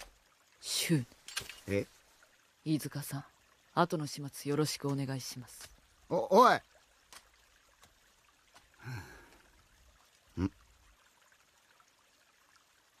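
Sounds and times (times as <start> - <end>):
person gasping: 8.8 - 9.4
person sighing: 8.8 - 9.4.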